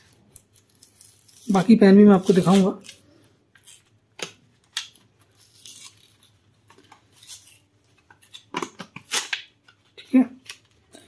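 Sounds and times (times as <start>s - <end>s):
cardboard tearing: 0.0s - 3.8s, 4.8s - 9.5s.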